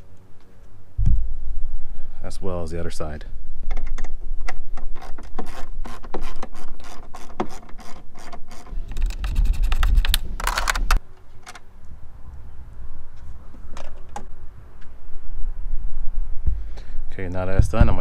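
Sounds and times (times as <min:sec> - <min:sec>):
low rumble: 0:00.9 - 0:02.3.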